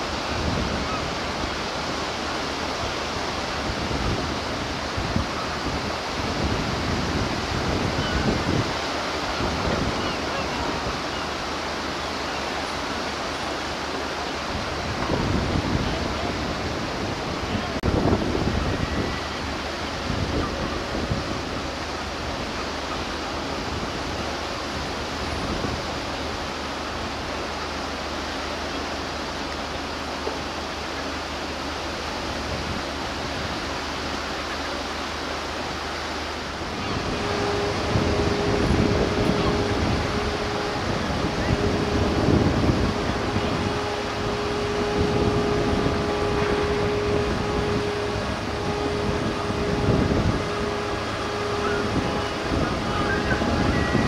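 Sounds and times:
surf washing: 0.0 - 54.0
wind: 0.0 - 54.0.

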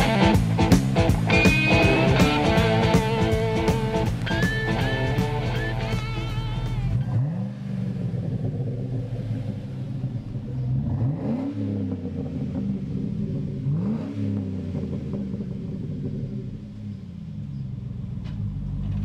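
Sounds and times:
guitar rock music: 0.0 - 7.0
truck engine idling and revving: 0.0 - 19.0.

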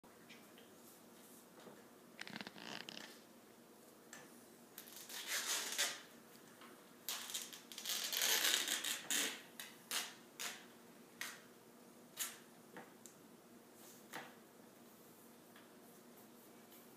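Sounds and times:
tape ripping off roll: 4.8 - 6.1, 7.1 - 10.6.

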